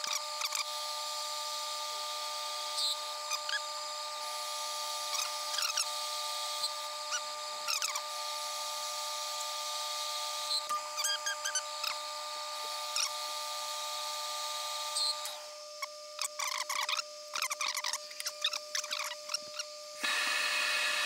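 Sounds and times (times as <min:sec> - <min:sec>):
lathe running with whine: 0:00.0 - 0:21.0
short high squeaks: 0:10.5 - 0:12.0, 0:15.0 - 0:19.8.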